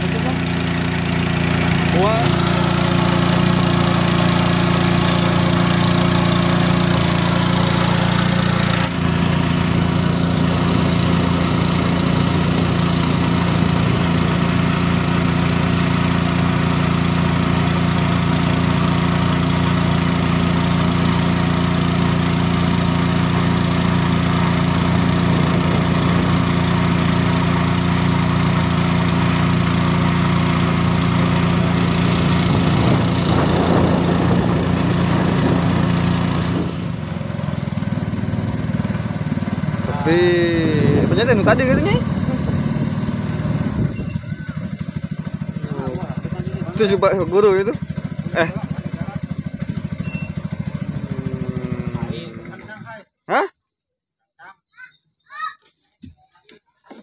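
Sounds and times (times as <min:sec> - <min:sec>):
small boat engine running: 0:00.0 - 0:53.5.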